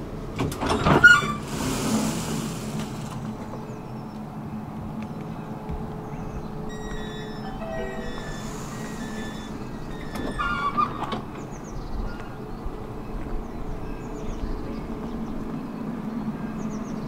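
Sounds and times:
tram rumbling on track: 0.0s - 17.0s
brief wavering squeal: 6.7s - 11.5s.

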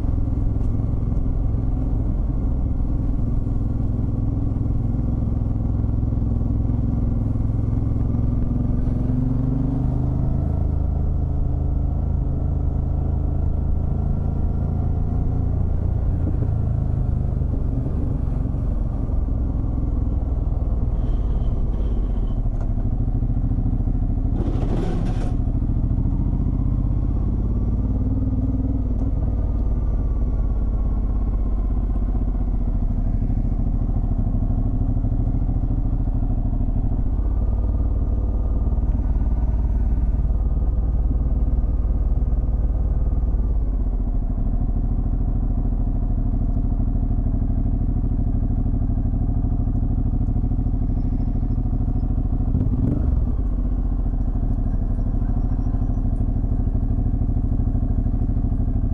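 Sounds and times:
brief clatter: 24.3s - 25.4s
motorcycle engine revving: 50.8s - 53.9s.

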